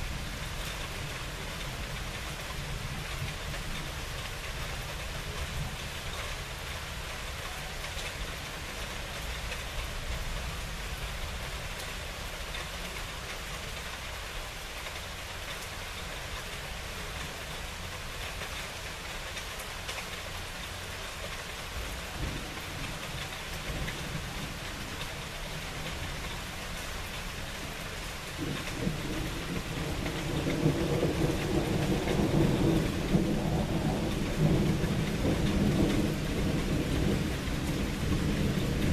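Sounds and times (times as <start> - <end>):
steady rain falling: 0.0 - 38.9
thunder rumbling: 28.4 - 38.9.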